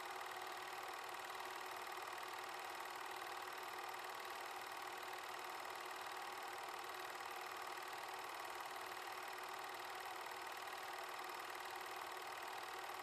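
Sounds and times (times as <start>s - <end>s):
film projector whirring: 0.0s - 13.0s.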